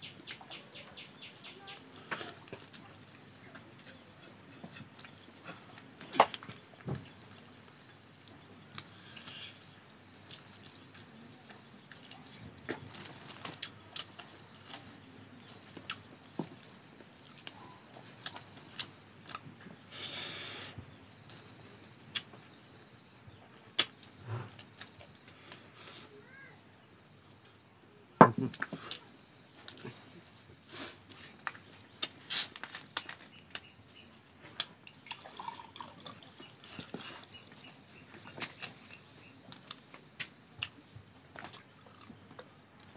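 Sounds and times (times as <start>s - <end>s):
insect trill: 0.0s - 42.9s.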